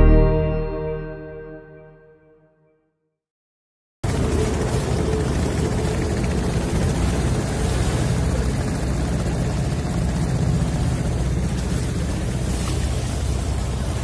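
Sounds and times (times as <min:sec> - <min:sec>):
boat engine running: 0:04.0 - 0:14.0
rushing water: 0:04.0 - 0:14.0.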